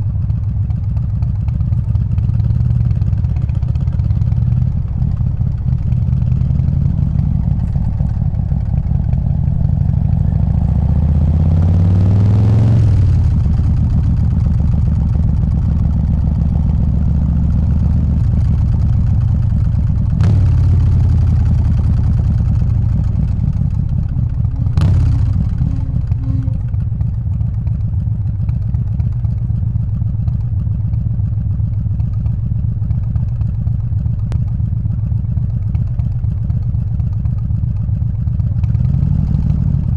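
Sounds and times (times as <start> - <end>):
motorcycle engine revving: 2.1 - 28.4, 38.6 - 39.9.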